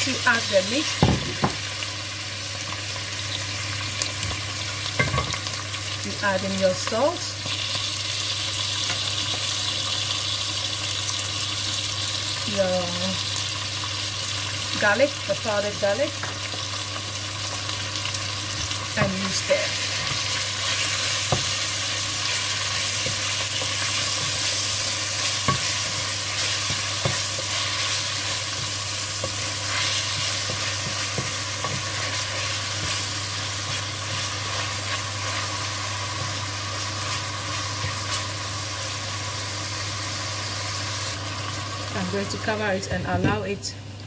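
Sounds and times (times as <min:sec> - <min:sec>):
meat and onions sizzling: 0:00.0 - 0:43.5.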